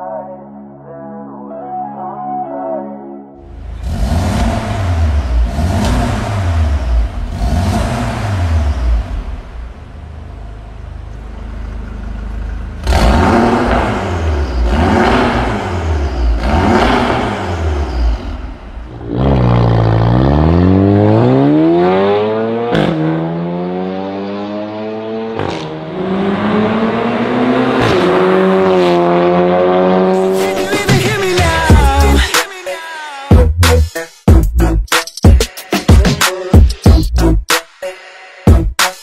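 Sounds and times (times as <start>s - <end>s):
car engine idling and revving: 3.4s - 32.3s
car accelerating hard: 3.6s - 9.9s, 11.6s - 32.0s.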